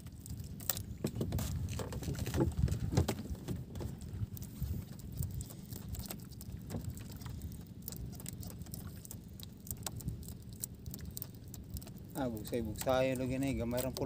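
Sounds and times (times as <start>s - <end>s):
water lapping against boat hull: 0.0s - 14.0s
wind rumble on microphone: 0.0s - 14.0s.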